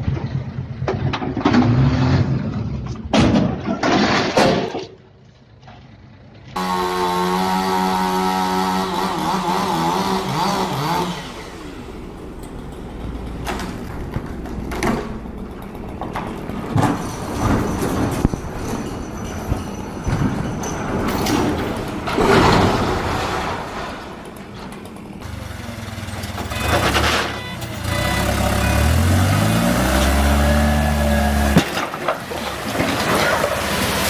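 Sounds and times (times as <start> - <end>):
engine running at high revs: 6.6 - 13.7, 26.5 - 31.8
mechanical rumble: 11.2 - 25.3.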